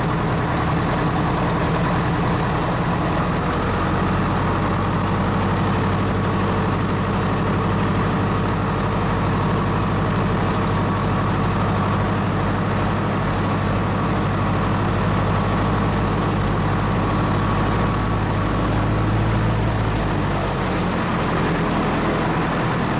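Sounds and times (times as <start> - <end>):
airplane engine idling: 0.0 - 22.9.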